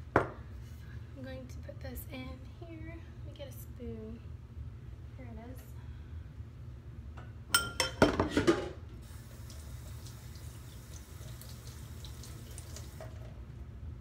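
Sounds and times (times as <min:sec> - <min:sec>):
running tap water hiss: 0:09.0 - 0:13.3.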